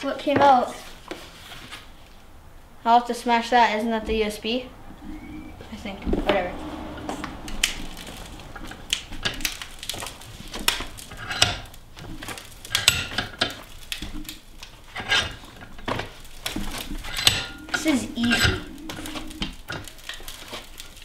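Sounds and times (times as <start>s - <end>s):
vise handle clanking: 10.7s - 14.3s, 17.0s - 18.7s.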